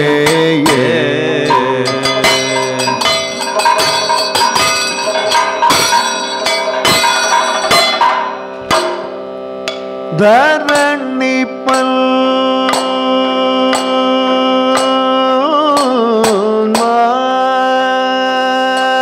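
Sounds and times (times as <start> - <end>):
sustained sung vocal line: 0.0 - 4.1, 10.1 - 19.0
ringing metal cymbal strikes: 0.0 - 12.1, 14.7 - 17.1.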